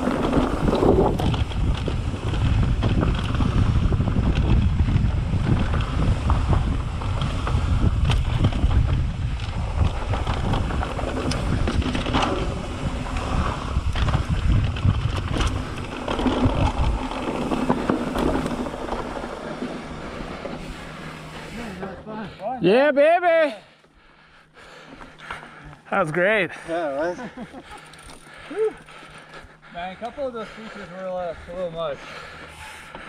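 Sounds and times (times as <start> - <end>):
wind buffeting microphone: 0.0 - 21.5
bike knocking and rattling: 0.0 - 21.8, 27.5 - 30.8
tyres rumbling on dirt: 0.0 - 22.8.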